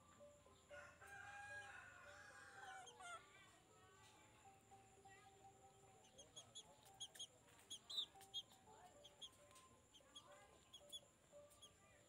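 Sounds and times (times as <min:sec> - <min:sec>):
high-pitched bird chirps: 0:06.0 - 0:09.4, 0:10.0 - 0:11.8.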